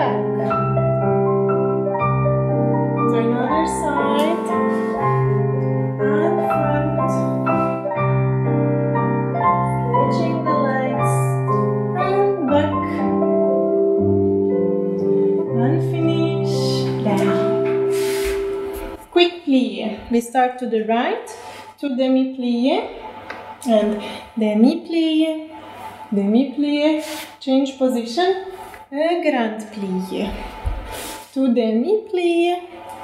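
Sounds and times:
piano chords over low bass: 0.0 - 19.0.

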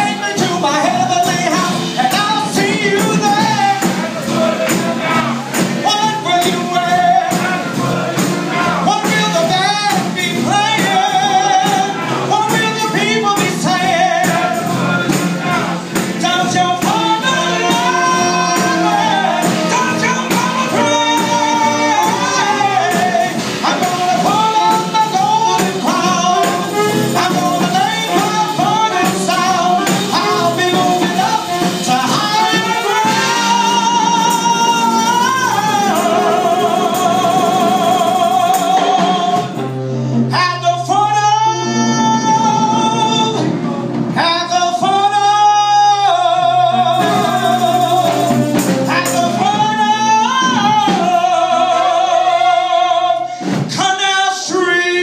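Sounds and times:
guitar: 0.0 - 55.0
horn melody: 0.0 - 55.0
upright bass: 0.0 - 55.0
tambourine shaking: 7.3 - 39.5, 46.9 - 49.8.

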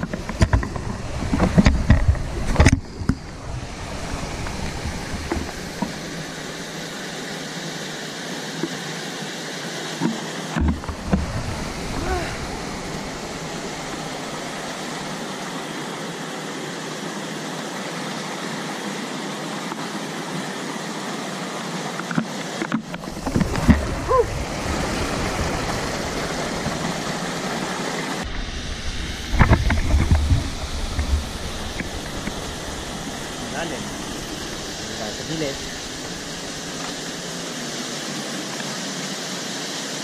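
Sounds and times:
thumps and rumbles: 0.0 - 3.4, 28.3 - 37.0
water rushing over rocks: 0.0 - 40.0.

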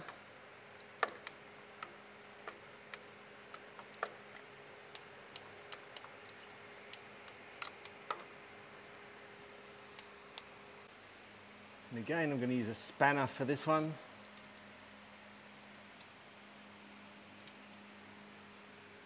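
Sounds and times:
faint steady hum: 0.0 - 19.0
socket ratchet clicking: 1.0 - 8.3.

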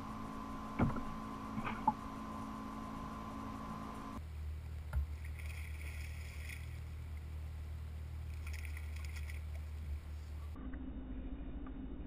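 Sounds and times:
low hum: 0.0 - 12.0
water lapping against kayak: 0.1 - 4.2, 5.0 - 7.2, 8.3 - 10.6.

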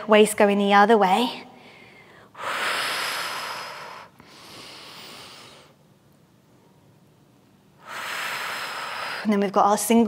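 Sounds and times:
woman breathing through mouth: 7.8 - 9.3.

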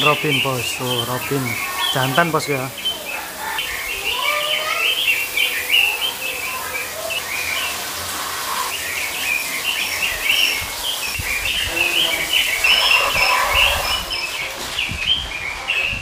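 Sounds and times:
low whistled bird notes: 0.0 - 16.0
songbirds chirping and twittering: 0.0 - 16.0.

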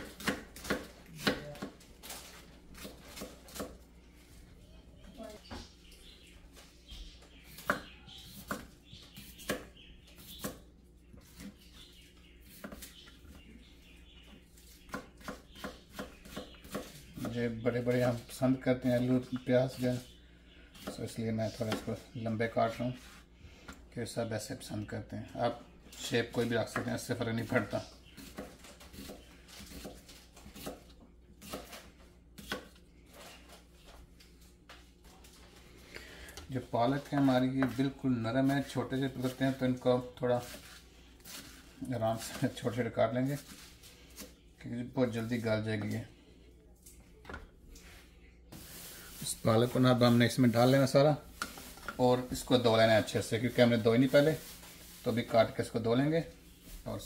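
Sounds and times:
knife slicing potato: 14.6 - 17.4, 27.5 - 32.8.

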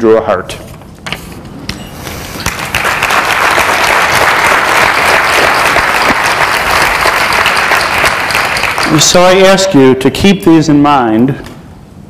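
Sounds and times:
audience applauding: 2.4 - 9.4.

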